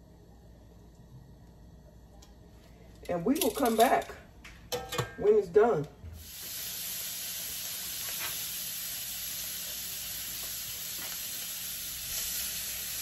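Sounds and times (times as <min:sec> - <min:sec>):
shrimp sizzling in a skillet: 0:06.2 - 0:13.0.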